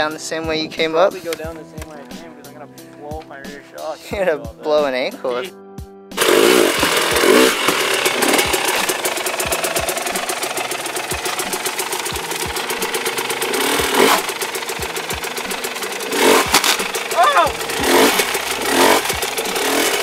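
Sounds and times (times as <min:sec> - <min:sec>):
dirt bike engine idling: 0:06.2 - 0:20.0.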